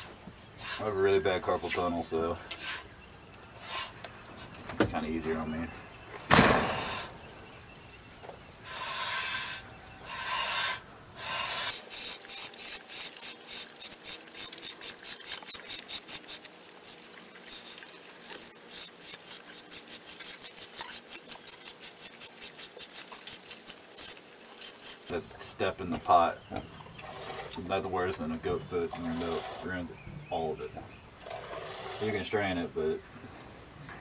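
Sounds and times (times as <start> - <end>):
milk squirting into a pot: 11.8 - 25.1.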